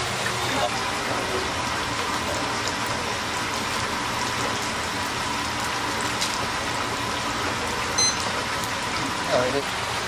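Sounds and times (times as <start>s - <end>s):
oil sizzling and bubbling: 0.0s - 10.0s.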